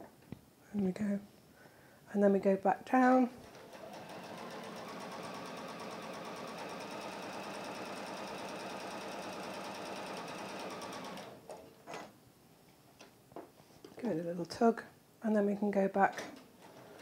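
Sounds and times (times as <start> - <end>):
electric sewing machine stitching: 3.4 - 11.5.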